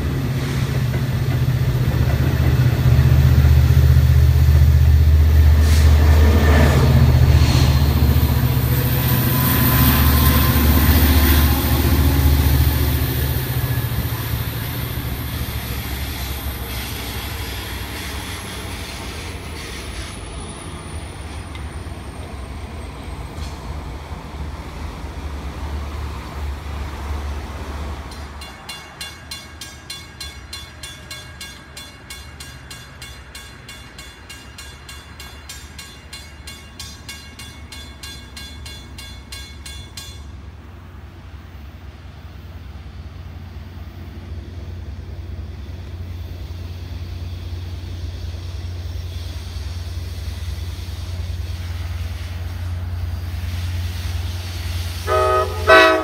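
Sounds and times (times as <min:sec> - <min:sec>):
diesel train rumble: 0:00.0 - 0:56.0
crossing warning bell ringing: 0:28.1 - 0:40.5, 0:55.1 - 0:56.0.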